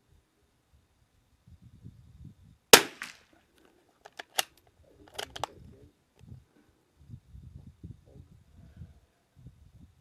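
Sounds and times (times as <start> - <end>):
rifle shot: 2.7 - 3.2.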